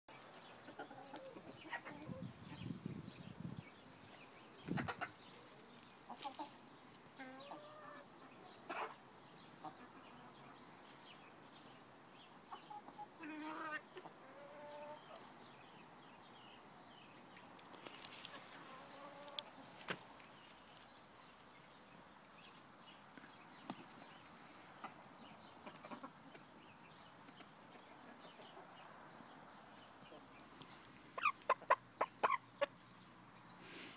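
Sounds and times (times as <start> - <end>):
chickens clucking: 0.2 - 3.5, 4.1 - 10.7, 12.4 - 15.3, 18.1 - 20.0, 23.2 - 33.0.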